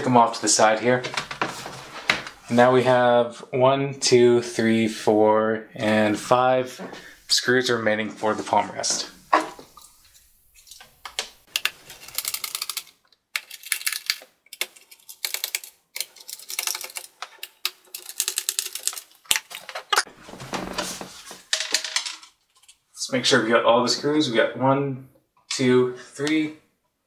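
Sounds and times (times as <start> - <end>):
handling noise: 1.0 - 2.5.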